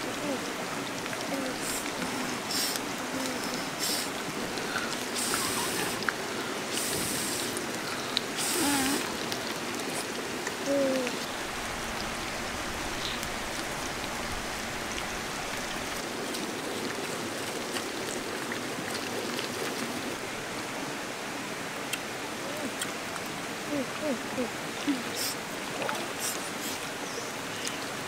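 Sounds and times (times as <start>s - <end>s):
river water rushing: 0.0s - 28.0s
short hissing bursts: 1.6s - 2.8s, 3.8s - 4.2s, 6.7s - 7.6s, 8.4s - 9.0s.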